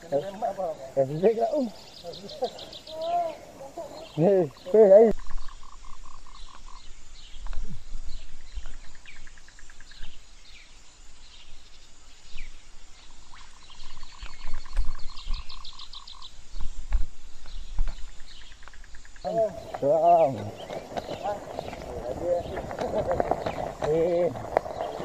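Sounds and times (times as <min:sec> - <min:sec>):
bike bumping over dirt trail: 0:17.0 - 0:25.0.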